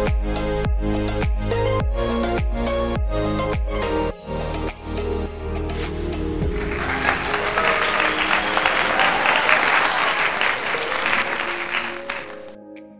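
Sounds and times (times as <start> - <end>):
background music: 0.0 - 12.9
applause: 6.5 - 12.6.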